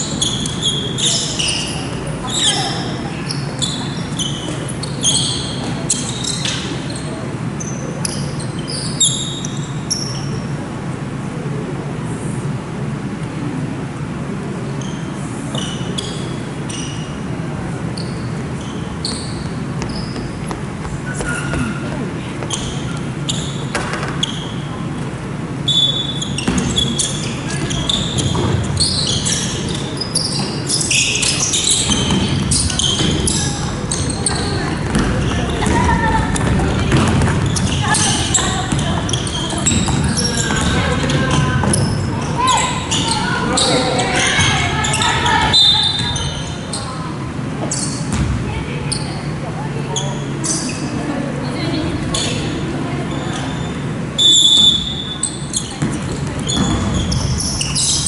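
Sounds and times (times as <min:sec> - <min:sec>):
shoes squeaking on hardwood floor: 0:00.0 - 0:10.5, 0:14.8 - 0:17.2, 0:17.9 - 0:25.0, 0:25.6 - 0:51.0, 0:51.7 - 0:58.0
low hum of large hall: 0:00.0 - 0:58.0
basketball bouncing: 0:34.2 - 0:42.1, 0:48.1 - 0:48.4, 0:55.8 - 0:57.5.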